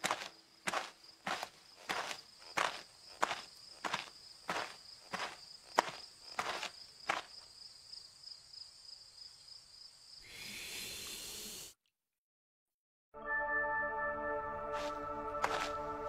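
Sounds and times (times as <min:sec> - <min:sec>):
music with held tones: 0:13.2 - 0:16.0.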